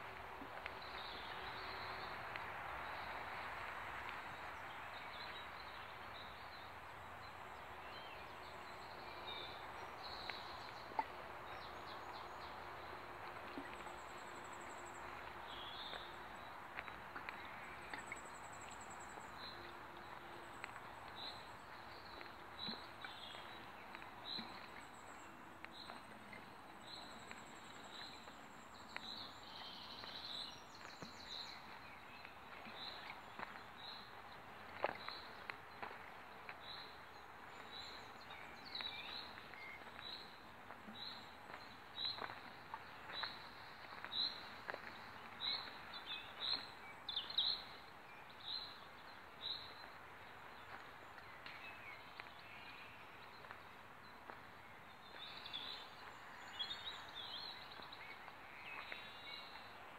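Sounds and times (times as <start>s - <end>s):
faint outdoor hiss: 0.0s - 59.9s
small birds singing: 4.5s - 59.8s.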